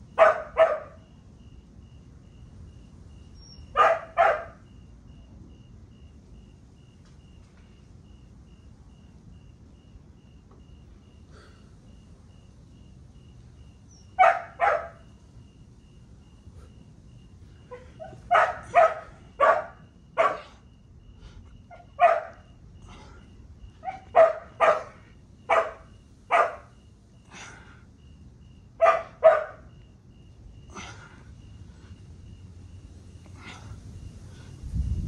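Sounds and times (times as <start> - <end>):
dog barking: 0.2 - 1.0, 3.7 - 4.6, 14.2 - 15.1, 17.7 - 20.6, 21.7 - 22.5, 23.8 - 26.7, 28.8 - 29.7.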